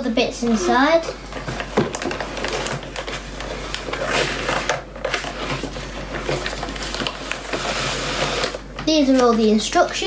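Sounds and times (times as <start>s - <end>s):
plastic bags rustling: 0.4s - 10.0s.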